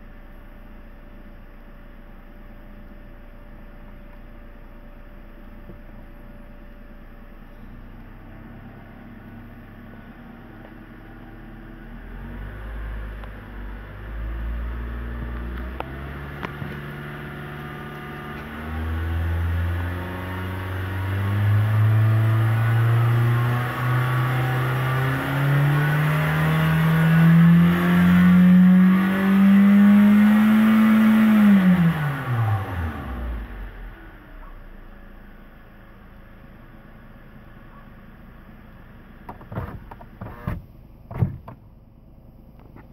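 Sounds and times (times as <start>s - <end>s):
car engine revving: 8.0s - 34.9s.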